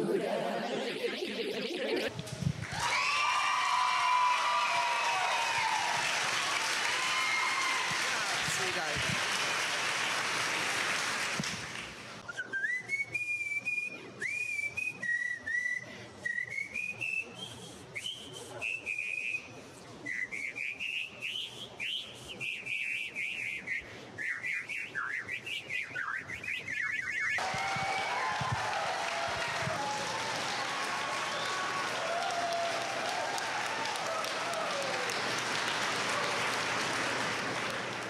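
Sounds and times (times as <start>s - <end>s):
audience applause: 1.6s - 12.2s, 27.4s - 38.0s
girl whistling a tune: 12.3s - 27.4s.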